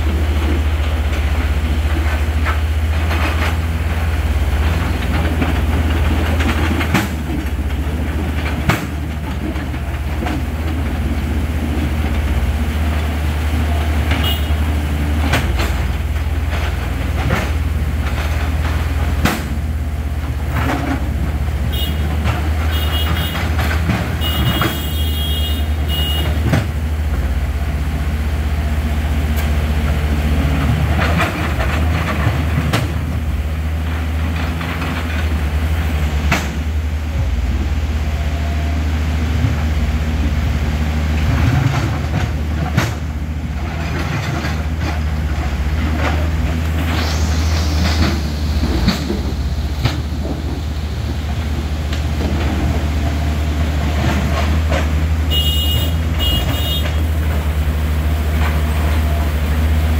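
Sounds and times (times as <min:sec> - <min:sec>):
diesel excavator engines droning: 0:00.0 - 0:59.9
rushing river: 0:00.0 - 0:59.9.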